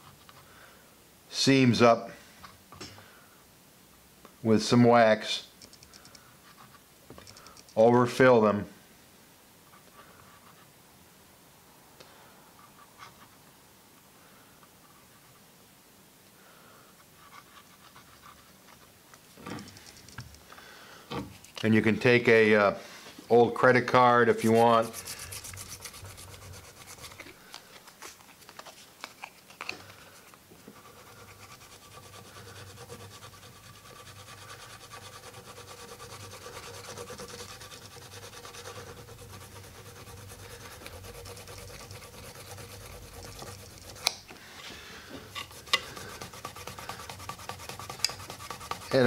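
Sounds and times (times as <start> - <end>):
sharp clicks: 5.6 - 6.2
plastic card scraping wood: 24.3 - 29.8, 30.7 - 44.3, 45.3 - 49.0.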